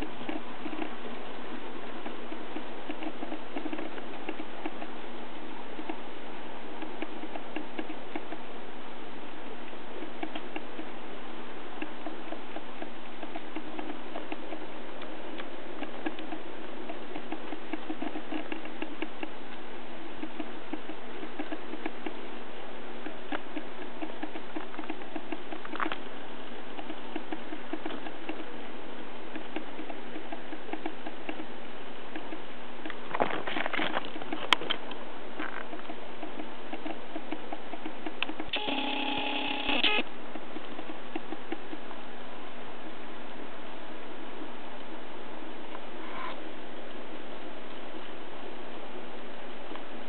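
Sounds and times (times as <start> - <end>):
steady low hum: 0.0 - 50.0.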